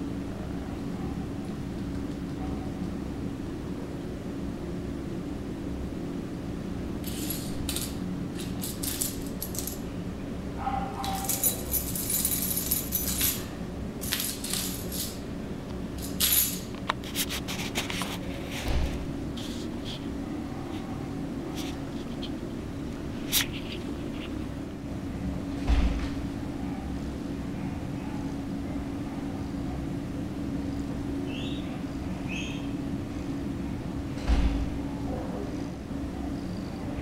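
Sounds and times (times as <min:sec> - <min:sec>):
cat toy rattling on tiled floor: 0:07.0 - 0:09.8, 0:11.0 - 0:15.3.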